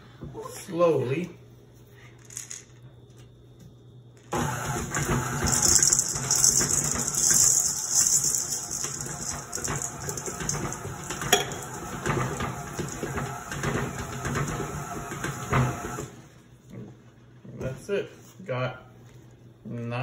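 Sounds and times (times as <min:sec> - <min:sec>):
stand mixer running: 0:04.3 - 0:16.2.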